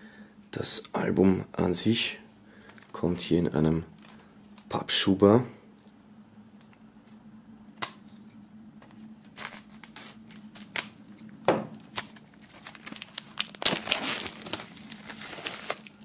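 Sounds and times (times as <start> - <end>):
plastic film crinkling and tearing: 9.2 - 16.0.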